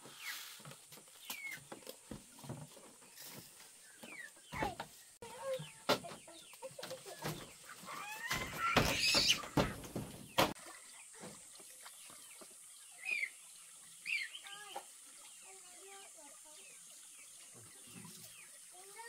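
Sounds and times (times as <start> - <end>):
chickens clucking and squawking: 3.7 - 11.2.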